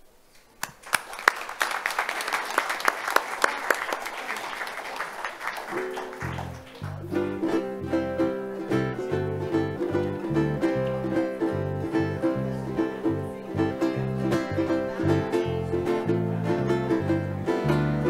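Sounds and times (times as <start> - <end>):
applause: 0.6 - 7.2
guitars playing plucked tune: 5.8 - 18.0
walking bass line: 6.3 - 18.0.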